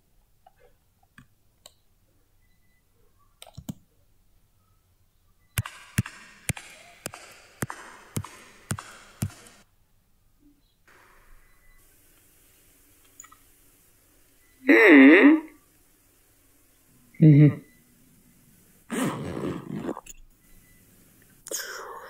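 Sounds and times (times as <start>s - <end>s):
sharp clicks: 5.6s - 9.6s
faint hiss: 5.6s - 22.0s.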